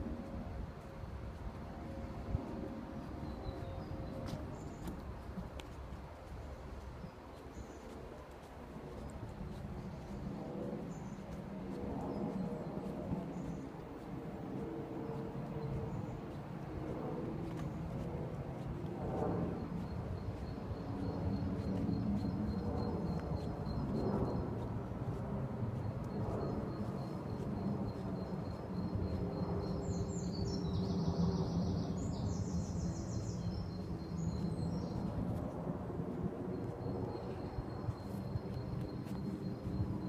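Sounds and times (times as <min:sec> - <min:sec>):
birds singing: 0:25.8 - 0:35.5.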